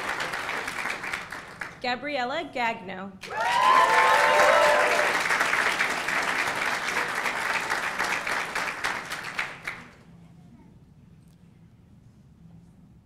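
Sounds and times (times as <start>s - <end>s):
audience applauding: 0.0s - 1.8s, 3.2s - 10.0s
cheering whoop: 3.2s - 5.3s.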